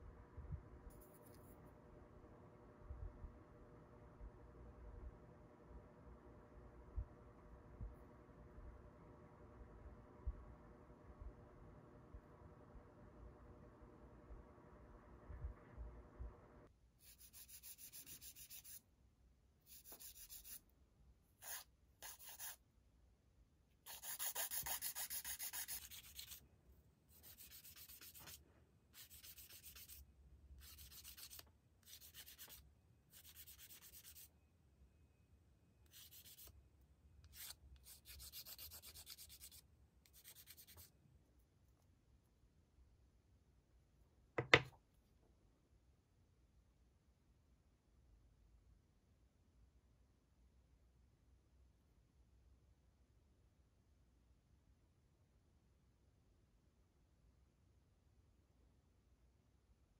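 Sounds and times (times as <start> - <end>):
nail tools scratchy rubbing: 17.0 - 18.8, 19.7 - 20.6, 21.4 - 22.6, 23.9 - 26.4, 27.1 - 28.4, 29.0 - 30.0, 30.6 - 34.3, 35.9 - 36.5, 37.2 - 40.9.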